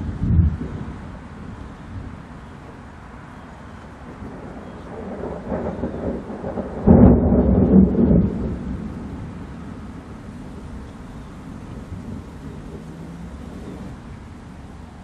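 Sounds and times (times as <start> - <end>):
thunder rumbling and clapping: 0.0 - 1.0, 4.0 - 10.7.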